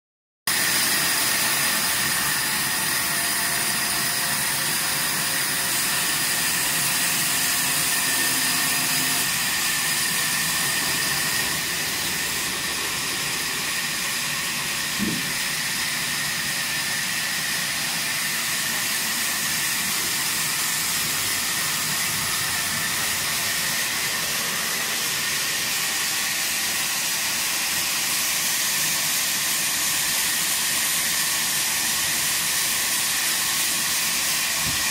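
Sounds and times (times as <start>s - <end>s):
sawmill machinery hiss and whine: 0.5s - 34.9s
brief knock: 15.0s - 15.4s.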